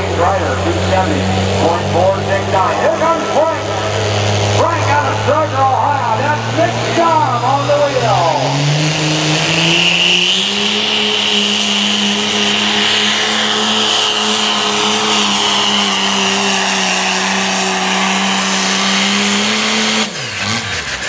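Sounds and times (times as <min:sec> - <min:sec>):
diesel truck engine at full throttle: 0:00.0 - 0:21.0
turbo whistle: 0:09.4 - 0:18.6.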